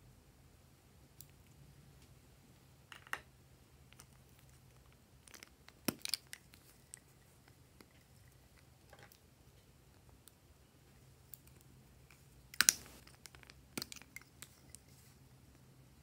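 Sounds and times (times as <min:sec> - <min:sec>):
small hard objects clicking together: 0:03.9 - 0:07.1, 0:12.6 - 0:14.8.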